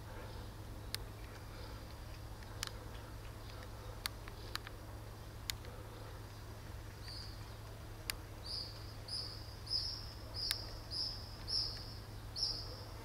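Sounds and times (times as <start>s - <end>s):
bird chirping: 5.9s - 7.8s, 8.4s - 13.0s.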